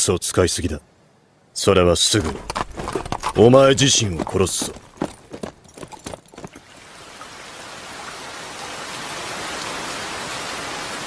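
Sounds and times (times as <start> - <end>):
rain hiss: 6.6 - 11.0.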